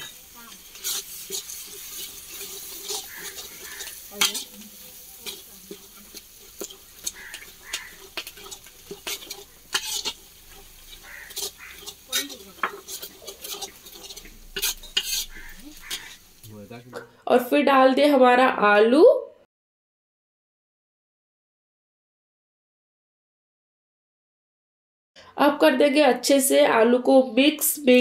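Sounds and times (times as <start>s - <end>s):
spatula scraping iron pan: 0.0s - 16.5s
food sizzling in oil: 0.0s - 18.6s.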